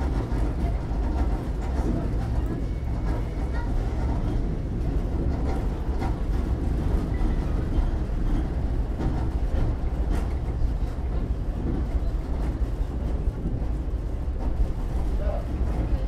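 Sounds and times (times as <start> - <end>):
tram wheels rumbling: 0.0 - 16.0.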